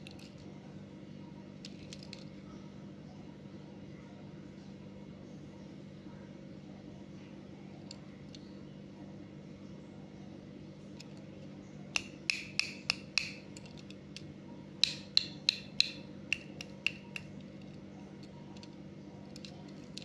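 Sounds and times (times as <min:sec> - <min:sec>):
finger tapping metal toy car: 0:11.9 - 0:14.2, 0:14.8 - 0:18.7.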